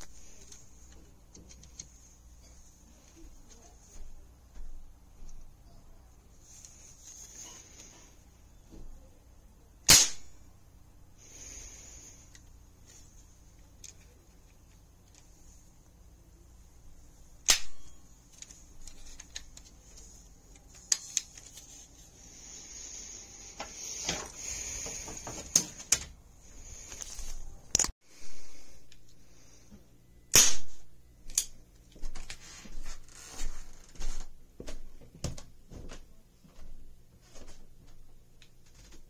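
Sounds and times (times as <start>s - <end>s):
toy cap guns firing: 9.9s - 10.3s, 17.4s - 17.9s, 30.3s - 30.7s.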